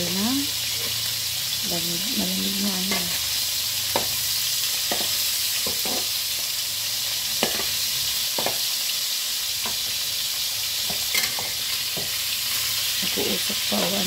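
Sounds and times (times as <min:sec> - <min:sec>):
fish sizzling in hot oil: 0:00.0 - 0:14.0
metal spatula tapping and scraping: 0:03.9 - 0:04.2, 0:04.8 - 0:06.1, 0:07.4 - 0:08.7, 0:09.6 - 0:10.0, 0:10.8 - 0:12.2.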